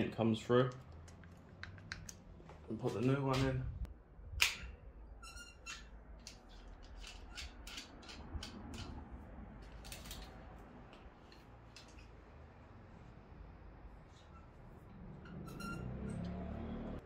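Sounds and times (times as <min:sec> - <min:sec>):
brief squeak: 0:15.2 - 0:16.5.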